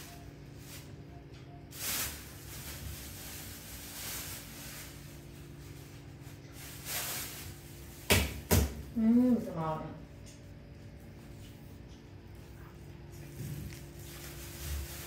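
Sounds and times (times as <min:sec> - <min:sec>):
low room hum: 0:00.0 - 0:15.0
soft rustles: 0:12.4 - 0:15.0.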